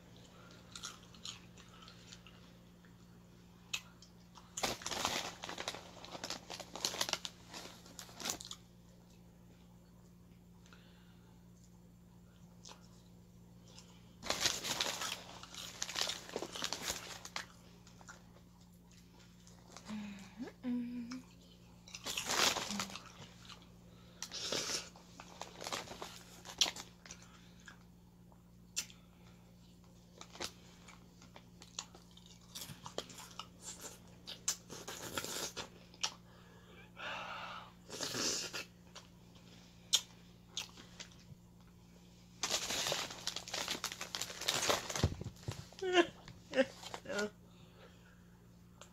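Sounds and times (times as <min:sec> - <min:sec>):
chewing crunchy chips: 0:00.1 - 0:03.0, 0:03.7 - 0:09.2, 0:12.4 - 0:19.9, 0:21.2 - 0:27.9, 0:29.8 - 0:36.2, 0:37.9 - 0:41.7.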